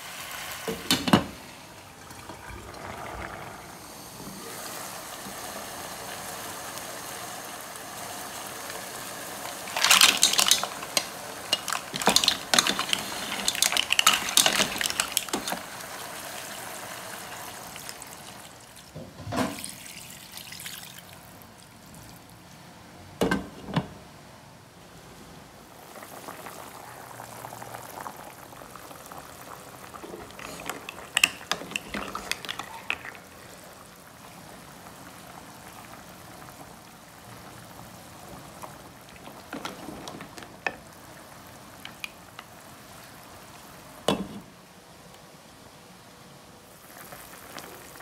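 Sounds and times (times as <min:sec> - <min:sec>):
gas stove hiss: 0:00.0 - 0:18.7
clatter and splashing: 0:09.7 - 0:15.6.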